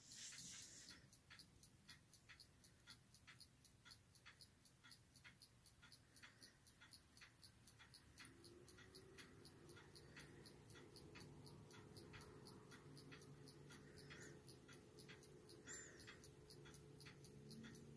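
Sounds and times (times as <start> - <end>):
faint even ticking: 0.0 - 17.9.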